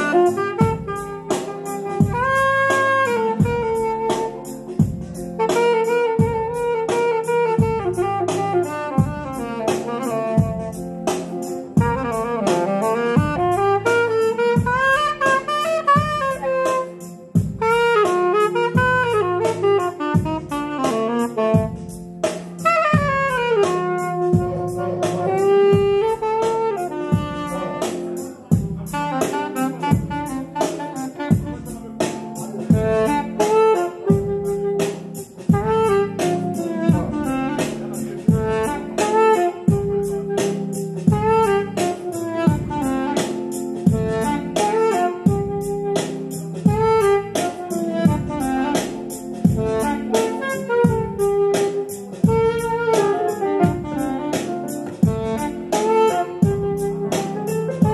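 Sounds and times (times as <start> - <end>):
band playing steady beat: 0.0 - 57.9
saxophone melody: 0.0 - 57.9.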